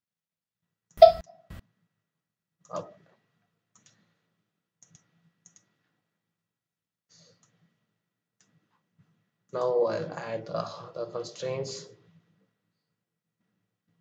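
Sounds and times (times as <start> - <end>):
computer mouse clicking: 3.7 - 4.0, 4.8 - 5.7.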